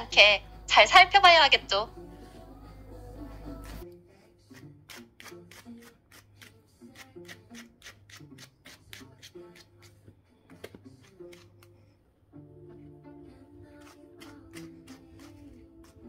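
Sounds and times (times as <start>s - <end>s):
soft background music: 0.0s - 16.0s
brush scratching through dog fur: 13.7s - 16.0s.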